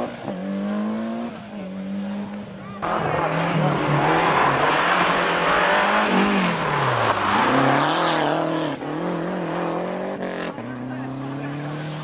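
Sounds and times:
rally car engine at full throttle: 0.0 - 12.0
tyre and road noise: 0.0 - 12.0.

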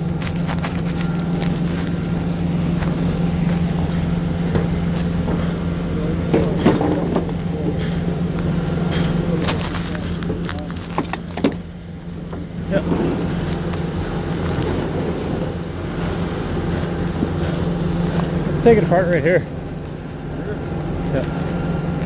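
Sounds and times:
large engine droning: 0.0 - 22.0
metal knocks and clanks: 2.9 - 11.7, 12.3 - 19.4.

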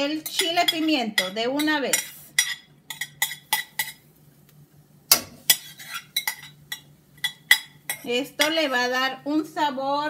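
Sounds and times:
utensils scraping a metal pan: 5.1 - 8.8.

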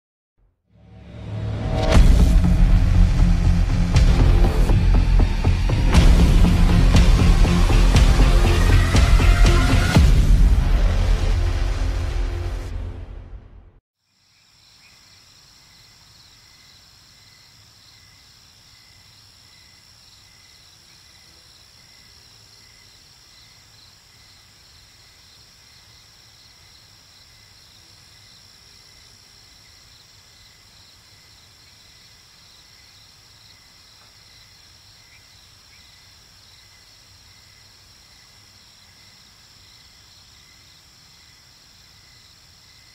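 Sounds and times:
crickets trilling: 14.1 - 42.9
lower pulsing cricket chirp: 14.1 - 42.9.

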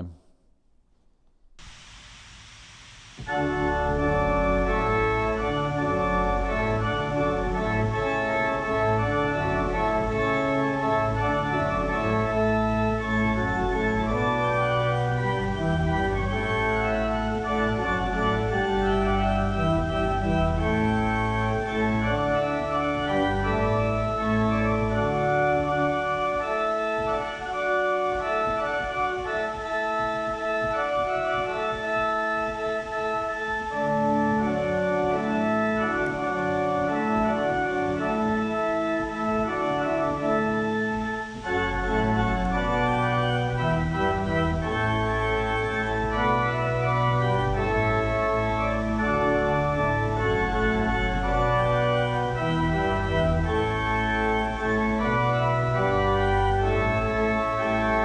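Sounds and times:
organ playing slow chords: 0.0 - 0.2, 3.2 - 58.0.

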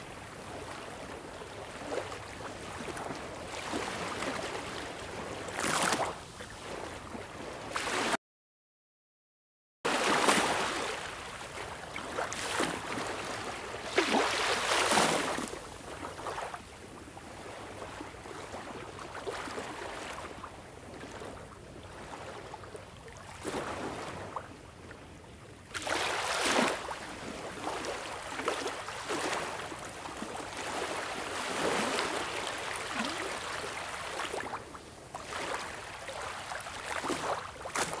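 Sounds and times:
waves breaking: 0.0 - 8.2, 9.9 - 16.6, 21.0 - 24.4, 25.7 - 38.0.

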